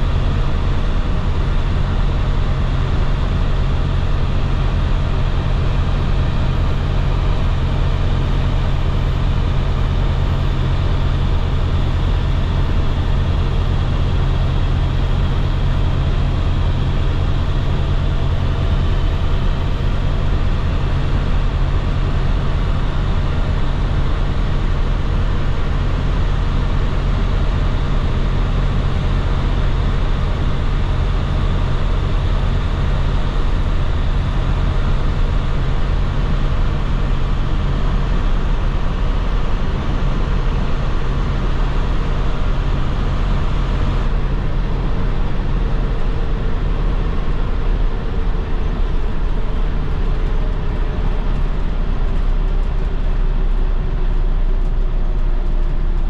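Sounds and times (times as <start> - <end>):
diesel bus engine running: 0.0 - 56.0
road noise: 31.5 - 56.0.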